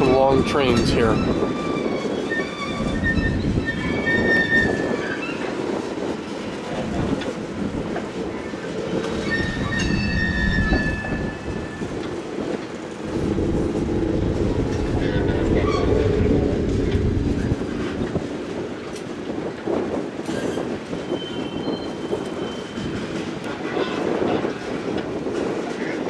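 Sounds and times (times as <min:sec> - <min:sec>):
steel wheel squealing on rail: 0:00.0 - 0:26.0
wheels clacking over rail joints: 0:00.0 - 0:26.0
freight cars rumbling past: 0:07.4 - 0:20.6.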